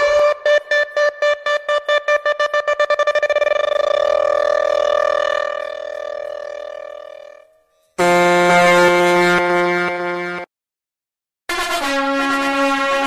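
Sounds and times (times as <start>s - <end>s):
horn sound effect blasts: 0.0s - 7.4s, 8.0s - 10.5s, 11.5s - 13.0s.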